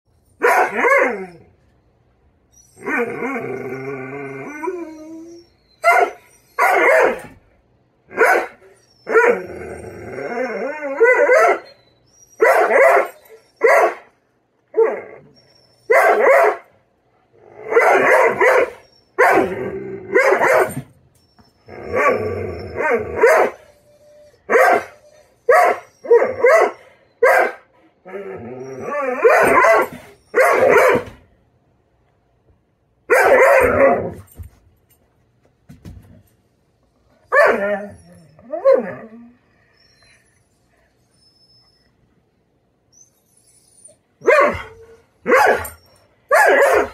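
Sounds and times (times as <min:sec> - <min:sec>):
dog barking and yowling: 0:00.4 - 0:01.5, 0:02.7 - 0:07.4, 0:08.1 - 0:11.8, 0:12.4 - 0:14.1, 0:14.7 - 0:16.7, 0:17.5 - 0:20.9, 0:21.7 - 0:31.2, 0:33.1 - 0:34.2, 0:37.2 - 0:39.4, 0:43.7 - 0:46.9.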